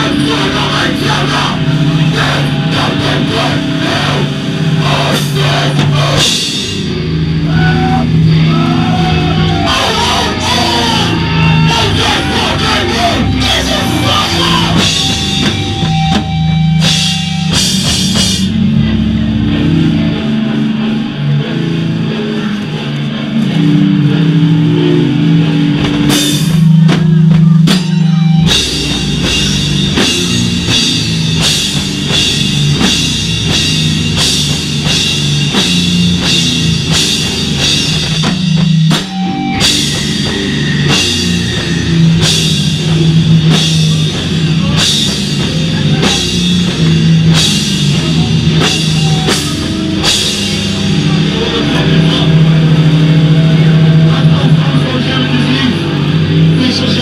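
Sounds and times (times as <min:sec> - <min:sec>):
drum kit: 0:00.0 - 0:57.0
heavy low guitar riff: 0:00.0 - 0:57.0.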